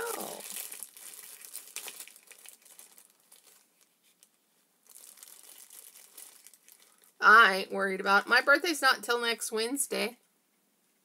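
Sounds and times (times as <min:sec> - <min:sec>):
crinkly packaging crackling: 0:00.0 - 0:07.2.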